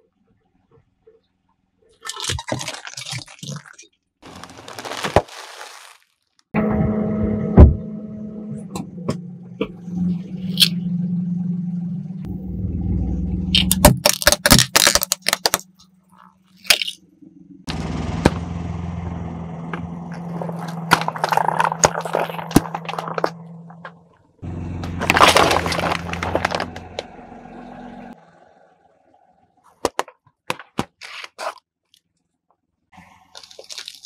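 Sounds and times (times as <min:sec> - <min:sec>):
tyre crushing plastic crackling: 0:02.0 - 0:06.4, 0:13.6 - 0:15.8, 0:20.1 - 0:24.0, 0:24.8 - 0:27.1, 0:33.3 - 0:34.0
car engine humming: 0:06.6 - 0:14.4, 0:15.5 - 0:29.7.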